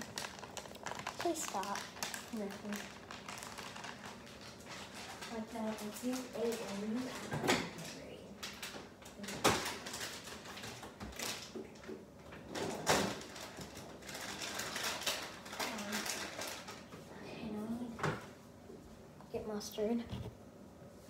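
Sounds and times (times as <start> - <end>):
rustling: 0.0 - 11.5.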